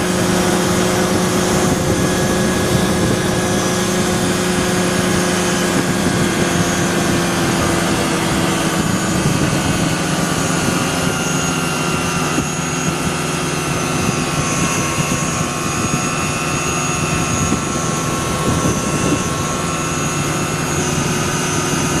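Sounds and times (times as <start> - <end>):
aircraft engine and propeller droning: 0.0 - 22.0.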